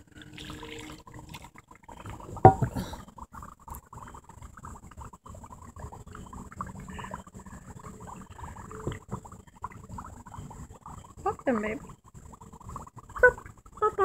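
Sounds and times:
dry ice bubbling and fizzing: 0.0 - 14.0
sharp knock: 2.5 - 2.7.

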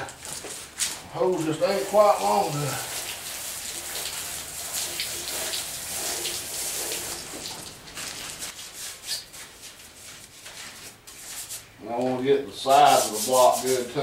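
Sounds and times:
water splashing from garden hose: 0.1 - 9.2
bristle brush scrubbing: 0.3 - 11.7, 12.6 - 14.0.

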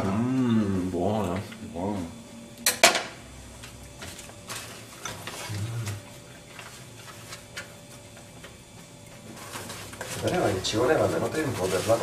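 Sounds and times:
kitchen things being handled: 9.4 - 12.0.

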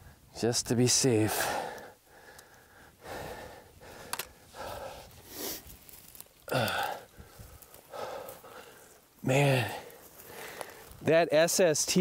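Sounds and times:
man breathing hard: 1.3 - 5.7, 6.5 - 11.0.

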